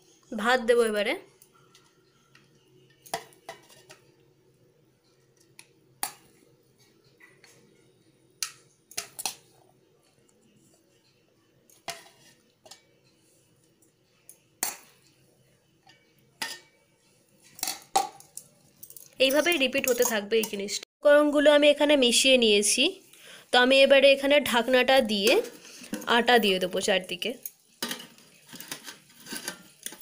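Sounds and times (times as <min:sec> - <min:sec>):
utensil clinking on metal pot: 0:15.9 - 0:16.8, 0:17.6 - 0:20.7.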